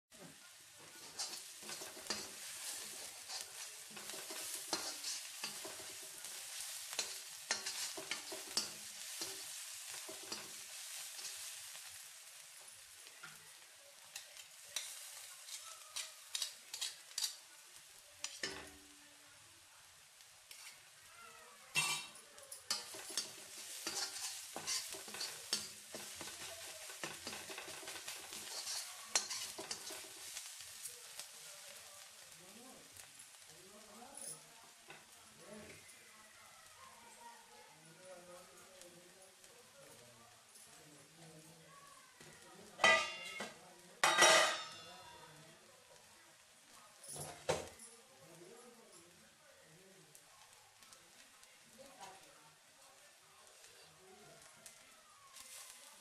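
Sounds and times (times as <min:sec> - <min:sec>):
paste sizzling in hot oil: 0:00.1 - 0:47.0, 0:48.2 - 0:56.0
spatula scraping wok: 0:00.6 - 0:13.4, 0:14.0 - 0:17.5, 0:18.2 - 0:18.8, 0:20.5 - 0:20.9, 0:21.7 - 0:32.3, 0:42.2 - 0:45.1, 0:55.4 - 0:56.0.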